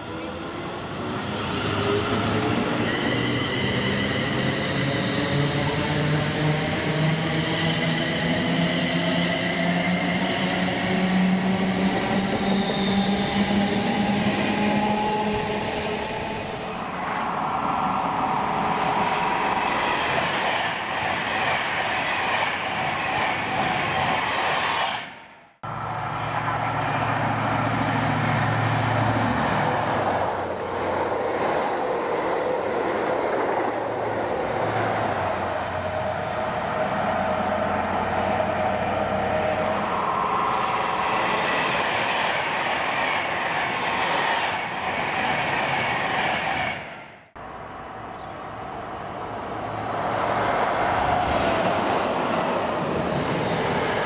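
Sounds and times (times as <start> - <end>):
train wheels rolling on rail: 25.6 - 38.5.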